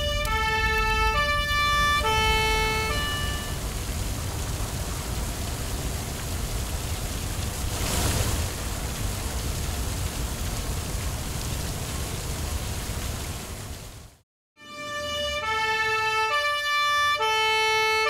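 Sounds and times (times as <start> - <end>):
water jet rushing hiss: 2.0 - 10.4.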